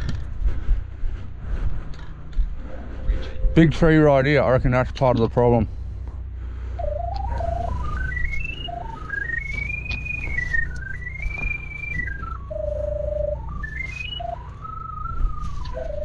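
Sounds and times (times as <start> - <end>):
steady low rumble: 0.0 - 16.0
person whistling a tune: 6.8 - 16.0.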